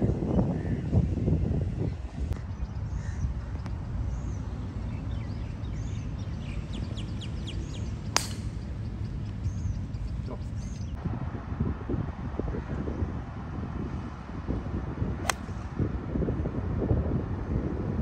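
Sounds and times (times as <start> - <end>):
wind rumbling on microphone: 0.0 - 18.0
birds chirping: 1.9 - 11.0
golf club striking ball: 8.1 - 8.7, 15.2 - 15.6.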